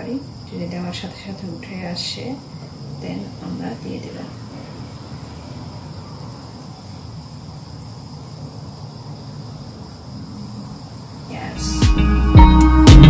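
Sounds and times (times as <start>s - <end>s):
music: 11.5s - 13.0s.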